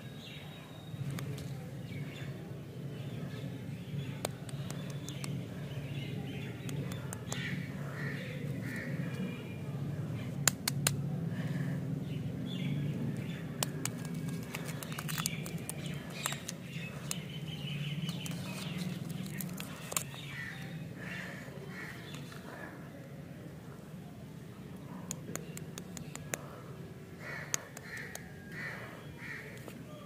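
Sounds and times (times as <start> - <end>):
steady low hum: 0.0 - 29.9
birds chirping: 0.0 - 30.0
plastic wrappers crinkling: 13.6 - 17.2, 18.0 - 20.3.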